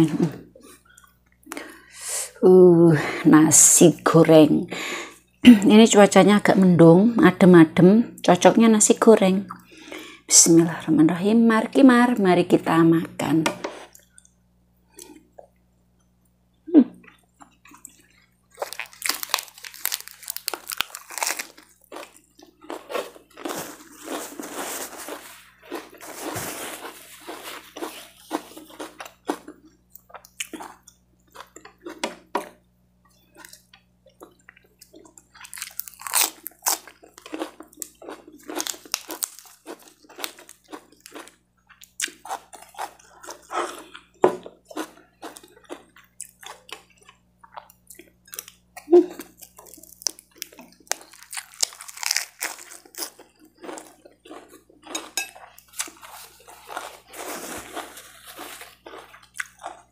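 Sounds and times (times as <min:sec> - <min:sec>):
chewing crisp lettuce: 0:17.0 - 0:32.0, 0:33.4 - 0:59.9.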